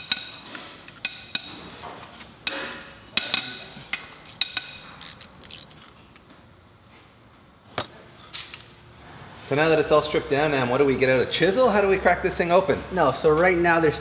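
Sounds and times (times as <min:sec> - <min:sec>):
wrench clinking on metal: 0:03.2 - 0:05.6.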